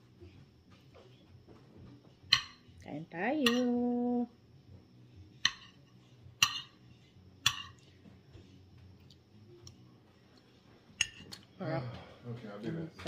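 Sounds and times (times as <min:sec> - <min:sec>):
metal spoon clinking on plate: 0:03.4 - 0:03.7, 0:06.4 - 0:06.8, 0:07.4 - 0:07.8, 0:11.0 - 0:11.4.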